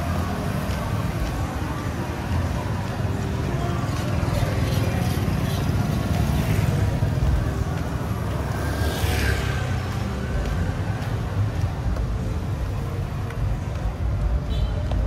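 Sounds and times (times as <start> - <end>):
faint music: 0.0 - 15.0
voices: 0.0 - 15.0.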